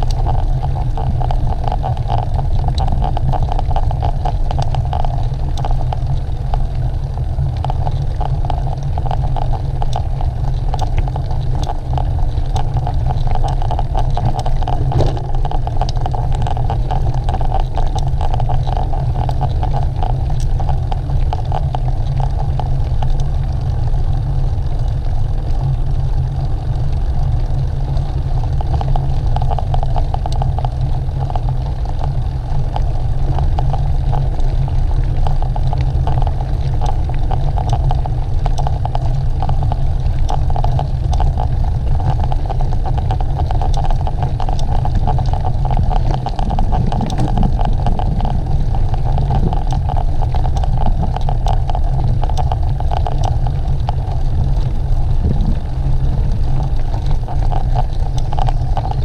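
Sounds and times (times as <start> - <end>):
tyres rolling hum: 5.8 - 22.6, 28.5 - 59.0
bicycle clicks and rattles: 14.2 - 16.6
wind buffeting microphone: 46.0 - 49.6, 55.0 - 56.8.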